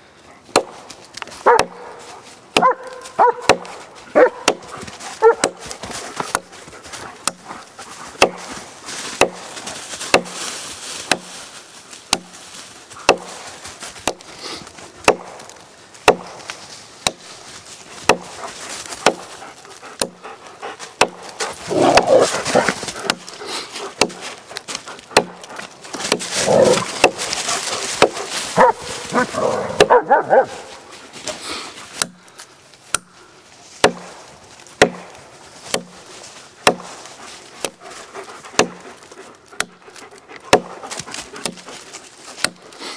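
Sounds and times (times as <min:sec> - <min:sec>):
hatchet chopping into log: 0:00.5 - 0:01.8, 0:02.6 - 0:03.8, 0:04.4 - 0:06.6, 0:07.2 - 0:07.4, 0:08.2 - 0:08.5, 0:09.2 - 0:09.5, 0:10.1 - 0:10.4, 0:11.1 - 0:11.3, 0:12.1 - 0:12.3, 0:13.0 - 0:13.4, 0:15.0 - 0:17.2, 0:18.0 - 0:18.3, 0:19.0 - 0:19.3, 0:20.0 - 0:20.2, 0:21.0 - 0:22.1, 0:23.0 - 0:23.3, 0:23.9 - 0:24.3, 0:25.1 - 0:27.4, 0:28.0 - 0:28.2, 0:29.8 - 0:30.0, 0:32.0 - 0:32.2, 0:32.9 - 0:33.1, 0:33.8 - 0:34.2, 0:34.8 - 0:36.0, 0:36.6 - 0:36.9, 0:38.6 - 0:38.8, 0:40.5 - 0:41.6, 0:42.4 - 0:42.6
dog barking: 0:01.4 - 0:04.6, 0:05.2 - 0:05.6, 0:28.6 - 0:30.7.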